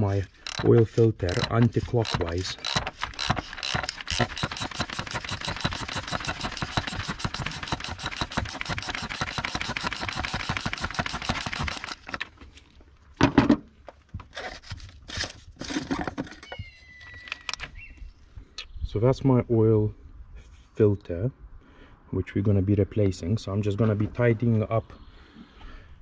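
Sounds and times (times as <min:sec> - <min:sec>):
socket ratchet clicking rapidly: 0:00.0 - 0:12.2.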